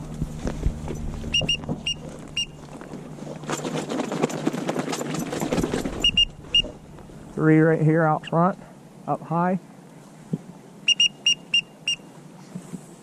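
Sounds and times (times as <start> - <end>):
rapid clicks and rustling: 0.0 - 7.1
low steady hum: 0.0 - 13.0
high whistled peeps: 6.0 - 6.7, 10.8 - 12.1.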